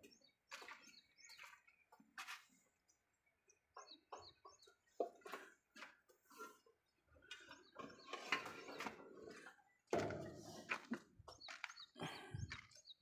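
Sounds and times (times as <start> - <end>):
footsteps on dirt: 0.5 - 2.6, 10.0 - 12.8.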